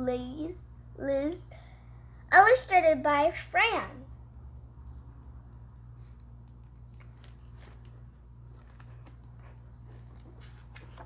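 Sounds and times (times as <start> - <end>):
low steady hum: 0.0 - 11.0
book pages turning: 6.0 - 11.0.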